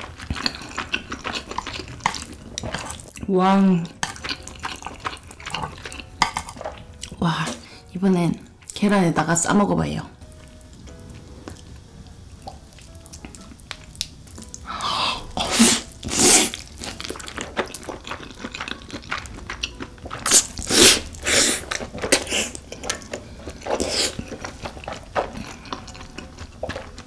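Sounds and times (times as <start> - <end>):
wet chewing: 0.0 - 7.2, 12.4 - 27.0
loud slurps: 15.4 - 16.6, 20.2 - 22.6.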